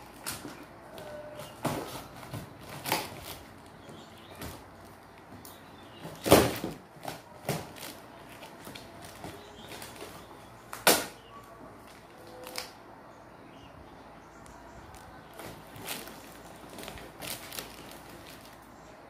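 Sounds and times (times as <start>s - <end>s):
packing tape ripping off cardboard: 1.4s - 3.7s, 5.5s - 11.2s.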